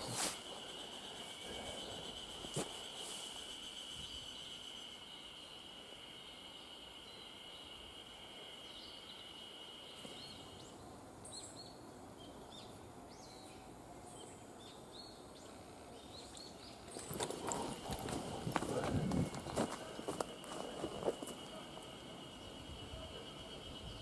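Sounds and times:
insect trilling: 0.0 - 10.7, 16.7 - 24.0
soft hiss: 0.0 - 16.9.

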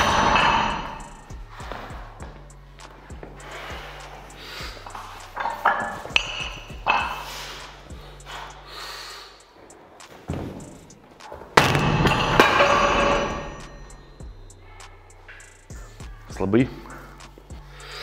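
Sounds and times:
dumbbell thud: 0.0 - 1.1, 10.3 - 14.0
heavy breathing and strained exhales: 2.9 - 10.1, 16.7 - 18.0
loud panting: 3.0 - 5.4, 7.0 - 9.8.

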